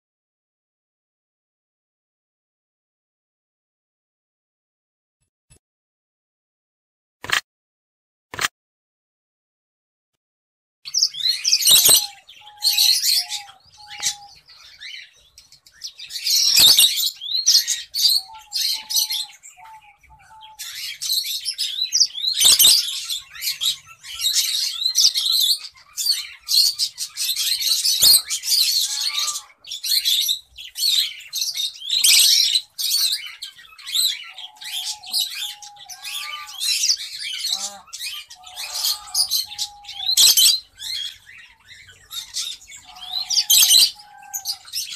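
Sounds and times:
finches chirping: 0:10.9 - 0:44.9.

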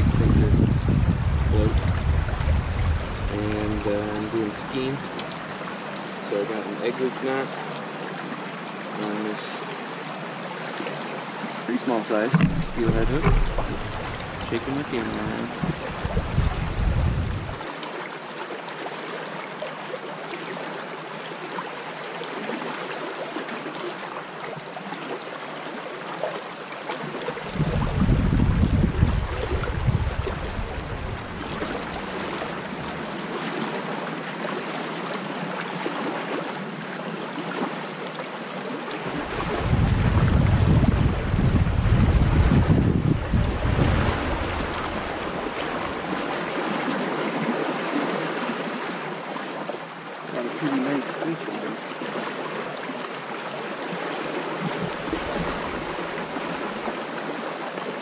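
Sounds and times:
wind buffeting microphone: 0:00.0 - 0:04.9, 0:12.2 - 0:17.6, 0:27.4 - 0:33.0, 0:39.1 - 0:46.3
creek water rushing over rocks: 0:00.0 - 0:58.0.

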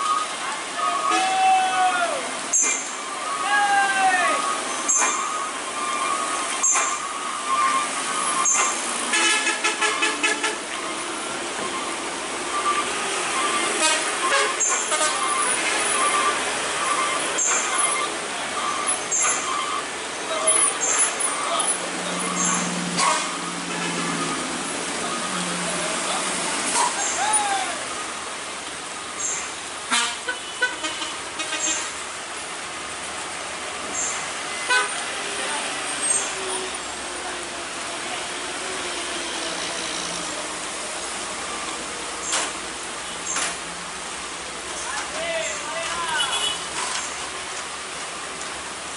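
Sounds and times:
rain: 0:00.0 - 0:48.9
truck engines climbing: 0:00.0 - 0:48.9
tyre noise on wet road: 0:00.0 - 0:48.9
vehicle horn: 0:09.1 - 0:10.6, 0:13.8 - 0:15.2, 0:29.9 - 0:32.0, 0:34.7 - 0:35.0, 0:46.1 - 0:46.6.

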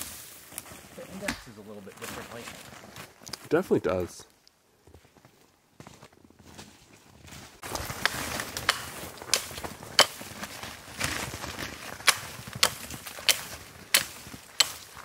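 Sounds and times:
branches rustling: 0:00.0 - 0:15.0
hatchet chopping branches: 0:01.2 - 0:01.6, 0:07.6 - 0:15.0.

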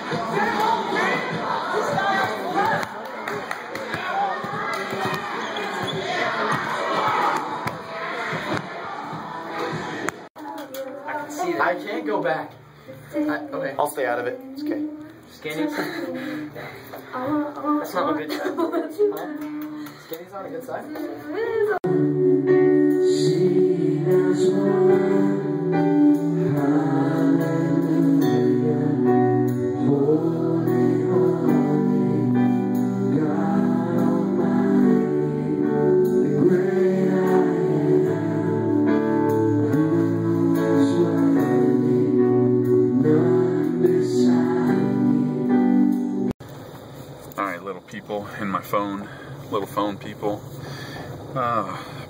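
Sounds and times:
person singing into a microphone: 0:21.2 - 0:45.8
held keyboard chords: 0:21.8 - 0:46.3.

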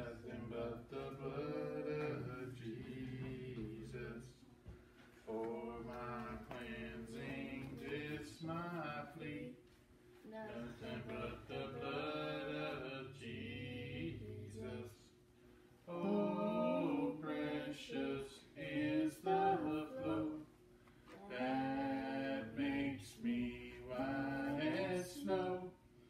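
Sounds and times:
boy singing a hymn unaccompanied: 0:10.3 - 0:15.0, 0:15.9 - 0:20.5.

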